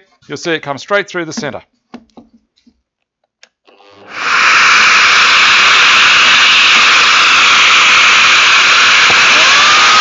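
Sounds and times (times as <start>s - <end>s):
power tool and dust extractor rushing: 3.8s - 10.0s.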